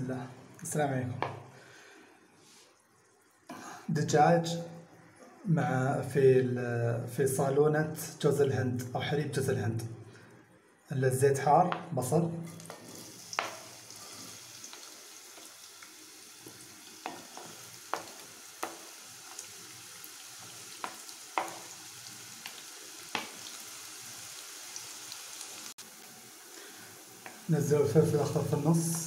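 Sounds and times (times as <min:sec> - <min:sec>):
onions sizzling in oil: 0:12.6 - 0:29.0
wooden spatula knocking: 0:17.0 - 0:18.9, 0:20.8 - 0:21.7.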